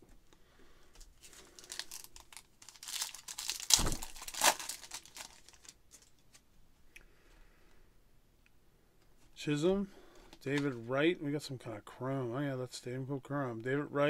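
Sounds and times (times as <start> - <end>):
foil wrapper tearing and crinkling: 1.2 - 6.1.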